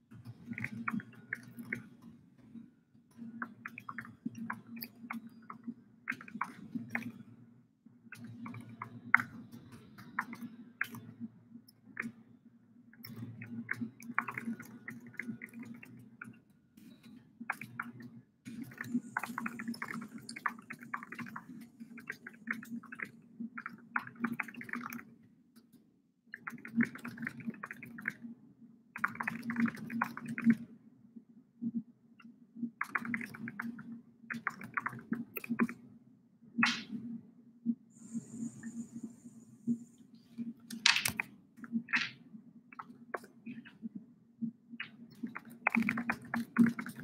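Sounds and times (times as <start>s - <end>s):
low steady hum: 37.9s - 46.8s.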